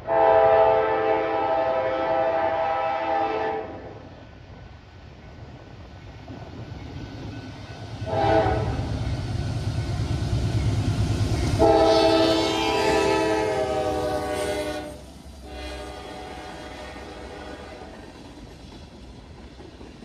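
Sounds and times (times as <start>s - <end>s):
locomotive horn blasts: 0.0s - 3.9s, 8.0s - 8.8s, 11.6s - 17.9s.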